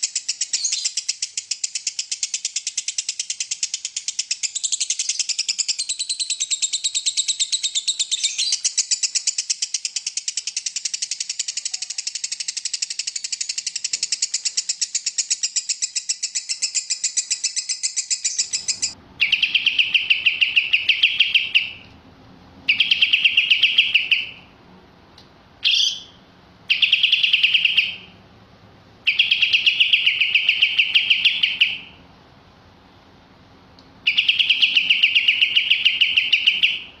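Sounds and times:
buzzy trilled bird phrases: 0.0s - 21.8s
bird ticking trill: 0.0s - 21.9s, 22.7s - 24.5s, 25.6s - 28.2s, 29.0s - 32.0s, 34.0s - 37.0s.

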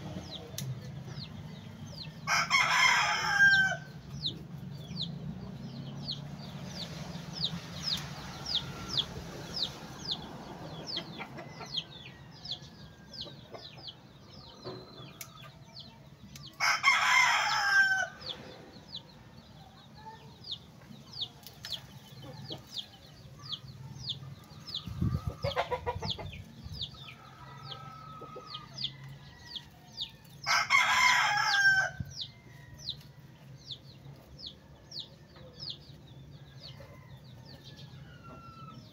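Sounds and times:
rooster crowing: 2.2s - 3.9s, 16.6s - 18.2s, 27.3s - 32.9s, 36.8s - 38.9s.

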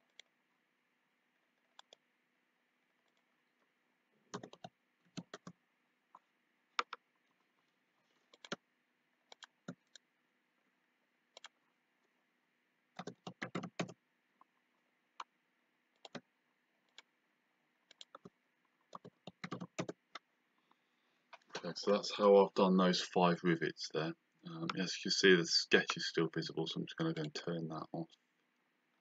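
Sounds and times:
computer mouse clicks: 1.7s - 2.0s, 4.3s - 6.2s, 6.8s - 7.0s, 8.3s - 8.6s, 9.3s - 10.0s, 11.3s - 11.6s, 13.0s - 14.0s, 16.0s - 16.2s, 16.9s - 17.1s, 17.8s - 18.3s, 18.9s - 20.2s
keyboard keystrokes: 4.4s - 5.5s, 13.0s - 14.0s, 18.9s - 20.0s.

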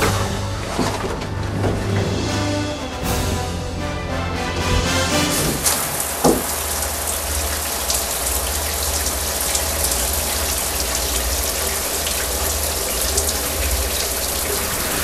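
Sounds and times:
shower water spraying: 4.8s - 15.0s.

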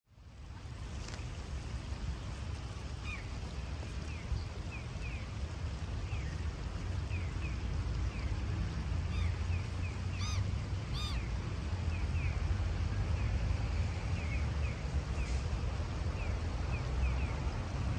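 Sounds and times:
birds chirping: 9.1s - 11.3s
loud bird calls: 9.1s - 11.3s.

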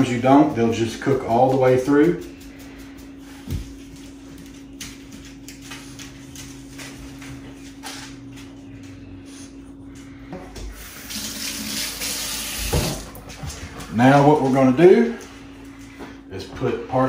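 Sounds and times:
low steady hum: 0.0s - 17.0s
kitchen faucet running: 10.6s - 14.8s.

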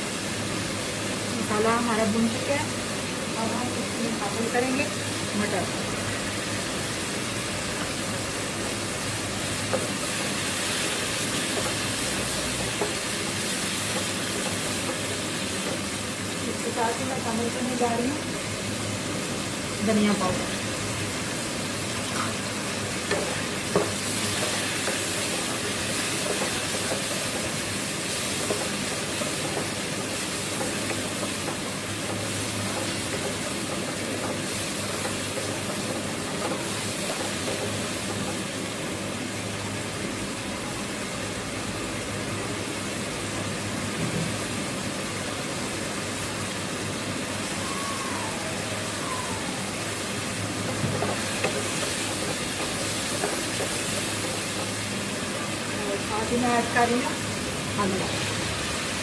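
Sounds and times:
food sizzling in a frying pan: 0.0s - 59.0s
spatula stirring: 22.9s - 37.8s.

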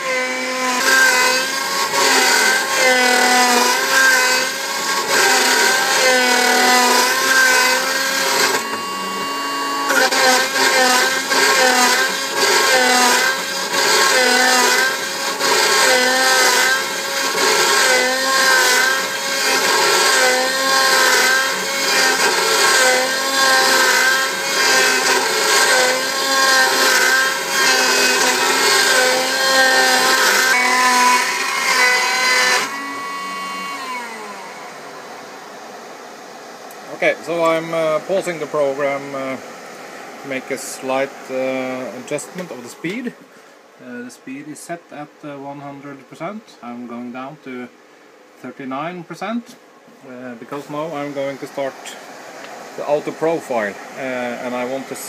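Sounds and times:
router motor whining: 0.0s - 43.1s.

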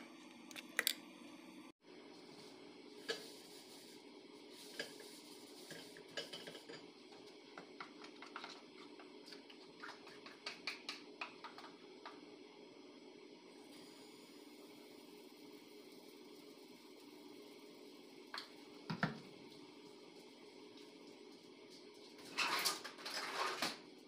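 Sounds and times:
utensils and dishes clinking: 5.6s - 6.9s.

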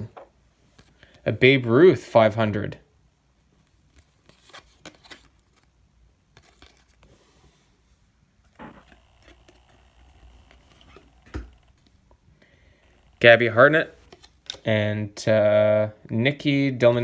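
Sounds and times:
trading cards being shuffled: 3.7s - 5.7s, 6.3s - 7.2s, 8.5s - 12.0s, 12.9s - 14.7s.

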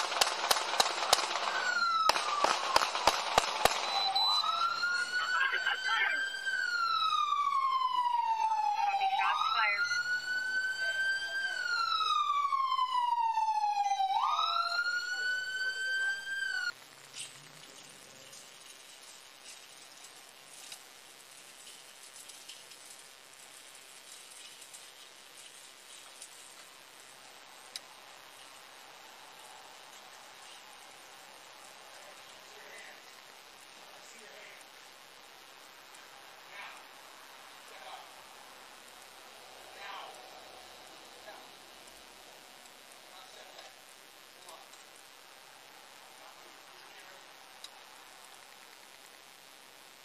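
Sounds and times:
police siren wailing: 0.0s - 16.7s
faint steady hiss: 0.0s - 50.0s.

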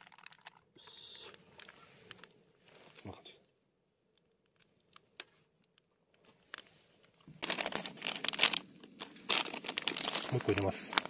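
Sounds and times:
plastic food package crinkling: 0.0s - 0.7s, 4.1s - 11.0s.

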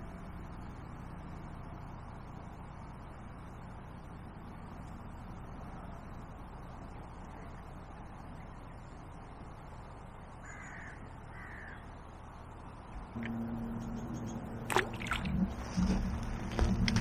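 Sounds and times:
outdoor background hiss: 0.0s - 17.0s
crow cawing: 10.4s - 11.9s.

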